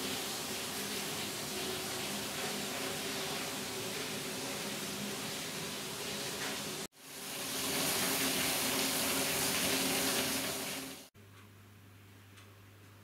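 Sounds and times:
water rushing through a water wheel: 0.0 - 11.1
low steady room hum: 11.2 - 13.0.

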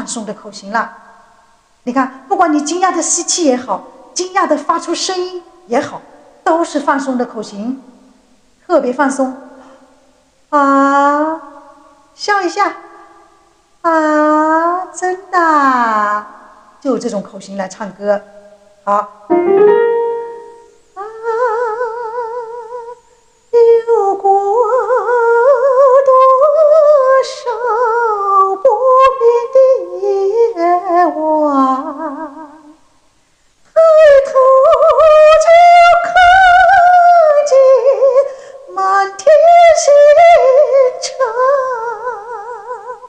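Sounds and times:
woman singing a slow ballad: 20.9 - 23.0, 23.6 - 32.8, 33.7 - 43.0.

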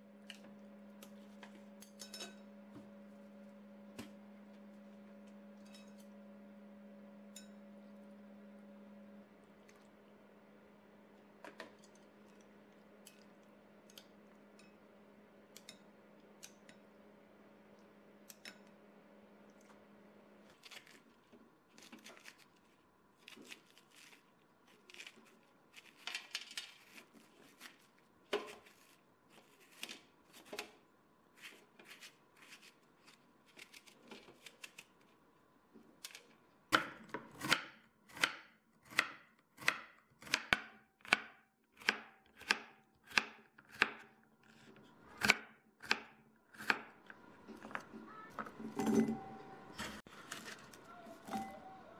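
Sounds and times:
low hum with faint ticks: 0.2 - 2.5, 11.1 - 14.8, 15.5 - 17.0, 17.7 - 18.8
scraping and snapping of vegetable: 20.4 - 30.8, 31.4 - 35.2, 35.8 - 48.0, 49.8 - 51.5.

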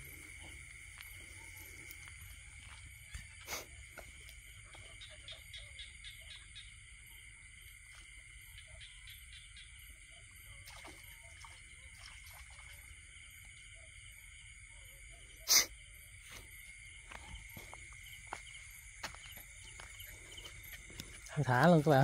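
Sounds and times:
insects shrilling: 15.4 - 15.8.

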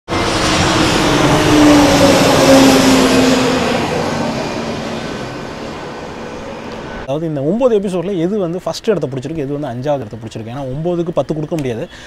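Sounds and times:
jet airliner flying overhead: 0.1 - 7.2.

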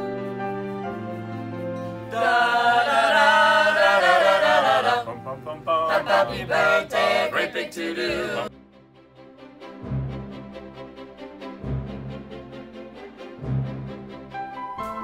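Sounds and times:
group of voices singing: 2.1 - 5.1, 5.7 - 8.5.

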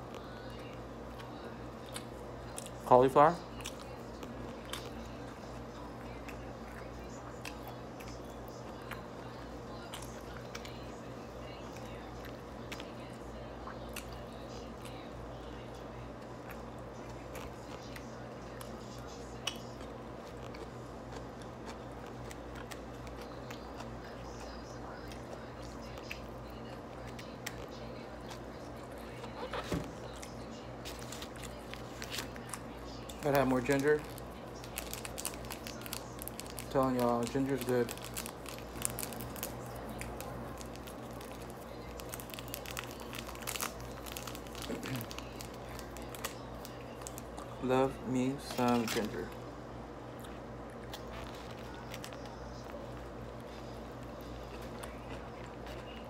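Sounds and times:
steady low hum: 0.0 - 56.0
person chewing: 19.4 - 25.4, 50.1 - 56.0
plastic packet crinkling: 30.9 - 47.4.

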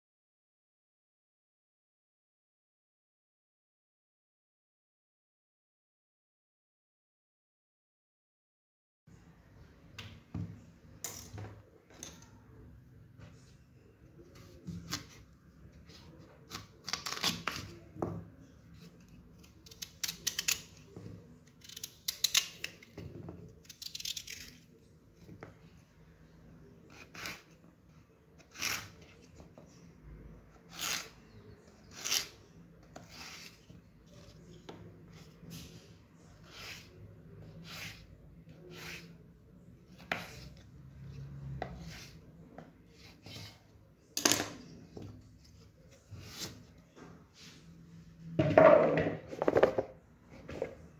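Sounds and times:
knife slicing potato: 26.9 - 27.5, 28.4 - 29.0, 31.8 - 32.3, 36.4 - 39.2, 39.9 - 40.6.

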